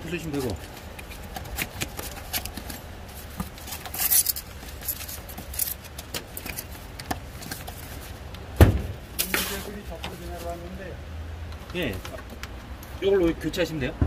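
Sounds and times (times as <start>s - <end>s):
scraping rustle: 0.0s - 10.8s.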